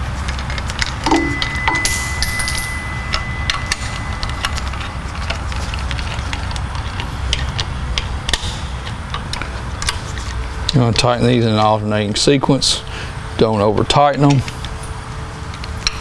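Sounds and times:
steady low hum: 0.0 - 10.7.

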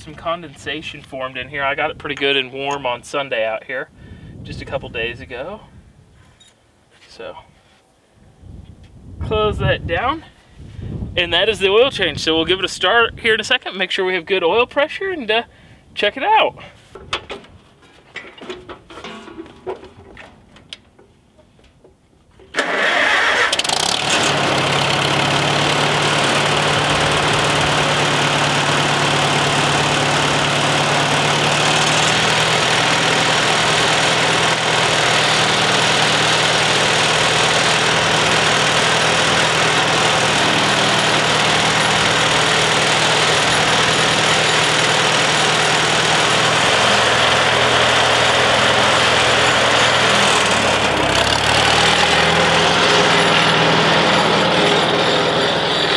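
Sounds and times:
tractor engine starting and idling: 18.2 - 21.1, 22.2 - 55.9.

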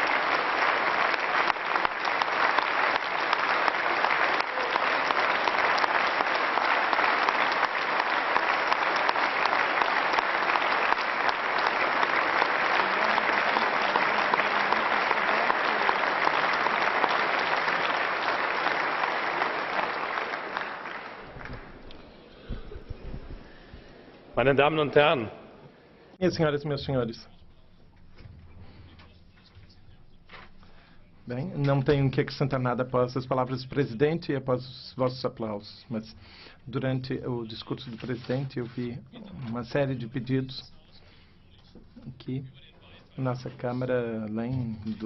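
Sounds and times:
crowd applauding: 0.0 - 23.6.

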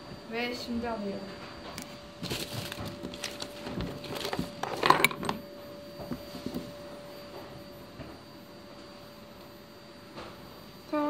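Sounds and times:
thin steady whine: 0.0 - 11.0
clicks and rustling of handling: 1.7 - 5.4.

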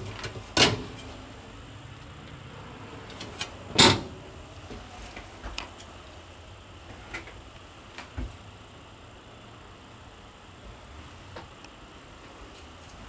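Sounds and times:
hard clunk: 3.2 - 4.2.

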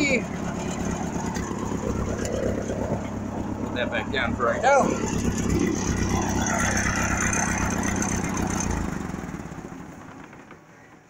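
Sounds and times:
tractor engine idling: 0.0 - 11.0.

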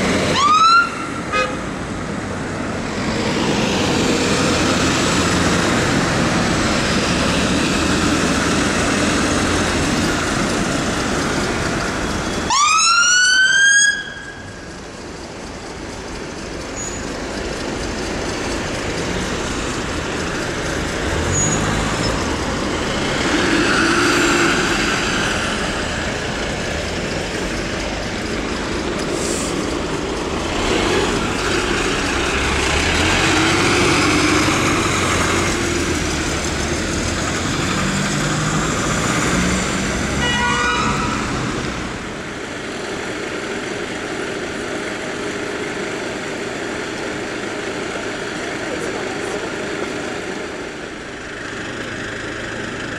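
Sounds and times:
fire engine siren wail: 0.0 - 1.6, 12.4 - 14.7
diesel engines: 0.0 - 52.9
traffic noise: 0.0 - 52.9.

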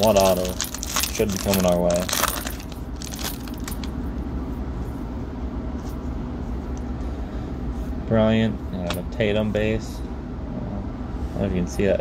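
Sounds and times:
foil wrapper crinkling: 0.0 - 3.9
steady low hum: 0.0 - 12.0.

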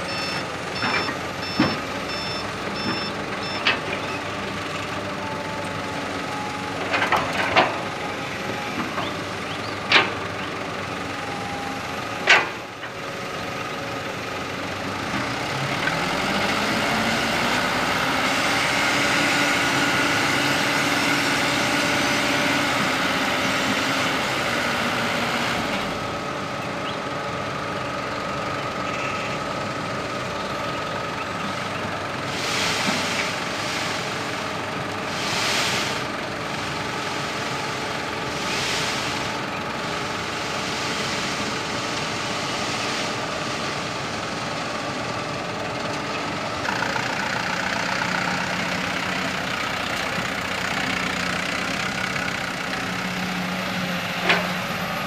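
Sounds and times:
diesel truck engine running: 0.0 - 55.0.

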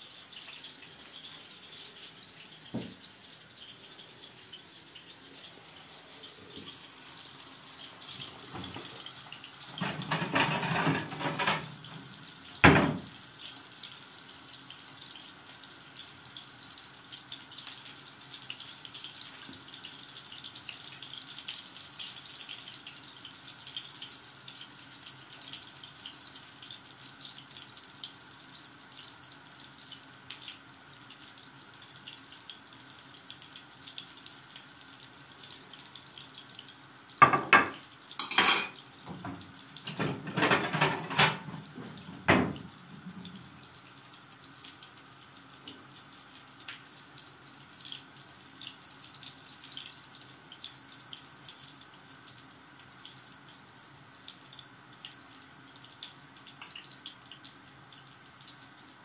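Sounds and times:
meatballs sizzling in a pan: 0.0 - 59.0
pot boiling and bubbling: 0.0 - 59.0
tongs clattering against pan: 9.8 - 11.8, 37.6 - 42.1.

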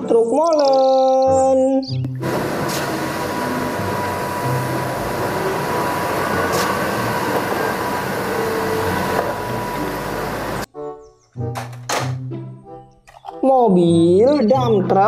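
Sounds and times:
truck engines droning: 2.1 - 10.7.

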